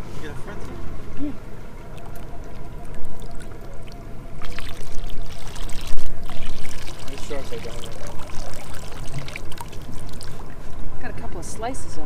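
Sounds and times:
water pouring and splashing: 0:01.9 - 0:10.8.

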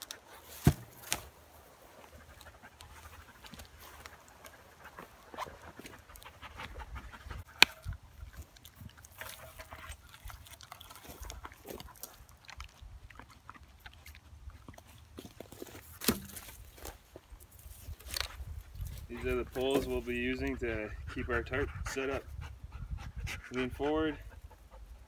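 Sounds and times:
dog panting: 0:01.9 - 0:15.0, 0:19.0 - 0:25.0.

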